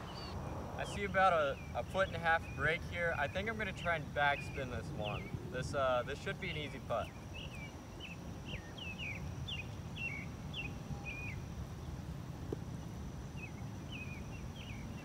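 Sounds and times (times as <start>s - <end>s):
bird chirping: 0.0s - 11.4s, 13.4s - 15.0s.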